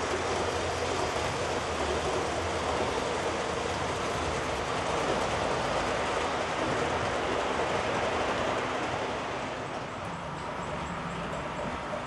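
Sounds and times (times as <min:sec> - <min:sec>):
model trains running on track: 0:00.0 - 0:12.0.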